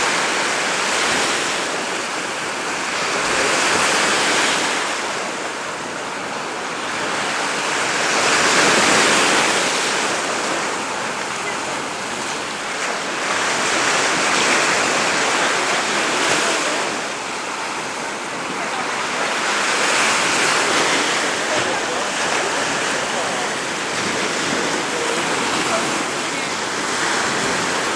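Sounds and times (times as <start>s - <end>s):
waves breaking on a beach: 0.0s - 27.9s.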